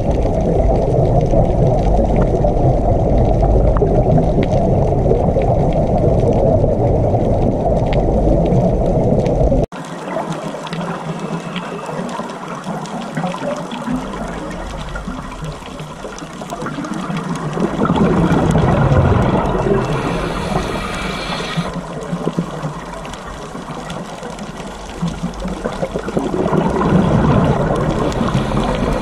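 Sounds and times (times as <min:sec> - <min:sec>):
underwater exhaled bubbles: 0:00.0 - 0:29.0
regulator hiss: 0:19.6 - 0:21.8, 0:28.0 - 0:29.0.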